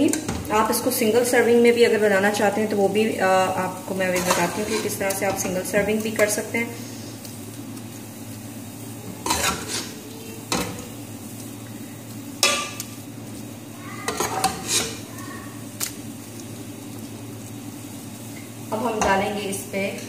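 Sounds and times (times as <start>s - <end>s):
spoon scraping steel pot: 14.1s - 15.0s.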